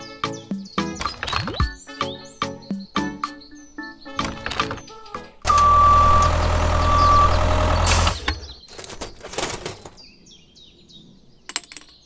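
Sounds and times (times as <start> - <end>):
long electronic beeps: 5.5 - 8.3
heavy vehicle engine rumbling: 5.5 - 8.6.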